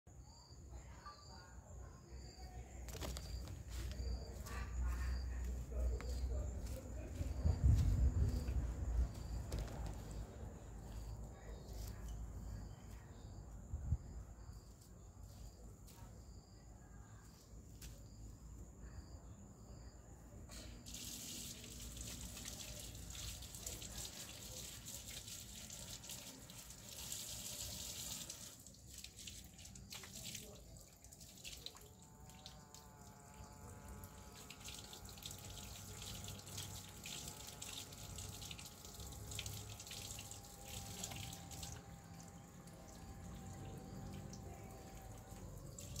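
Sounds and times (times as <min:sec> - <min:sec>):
tap water running and splashing: 0:20.8 - 0:46.0.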